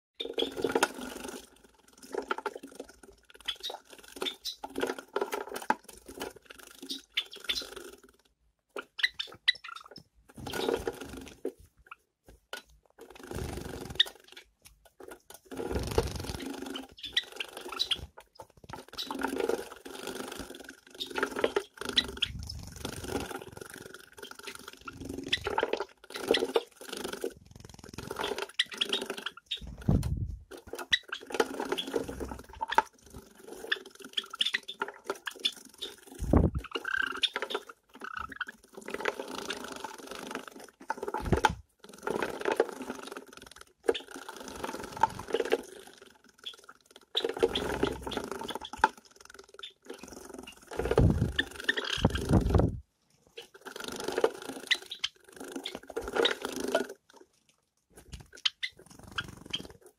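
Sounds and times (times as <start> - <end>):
birds splashing water: 15.4 - 29.9, 30.6 - 52.6.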